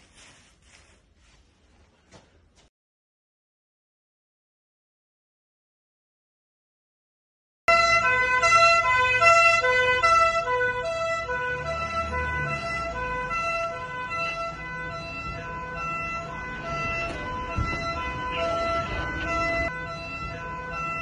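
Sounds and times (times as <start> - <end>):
police siren two-tone: 7.7 - 21.0
engine rumble: 7.9 - 21.0.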